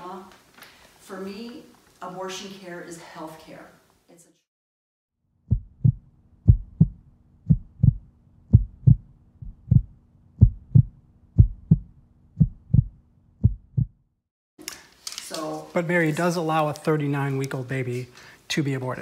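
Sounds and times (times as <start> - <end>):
heartbeat thumps: 5.5 - 14.0
person speaking: 15.2 - 19.0.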